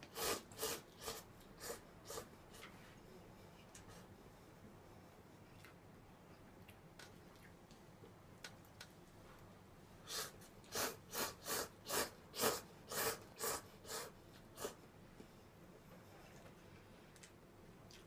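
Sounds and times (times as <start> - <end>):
person slurping noodles: 0.1 - 2.3.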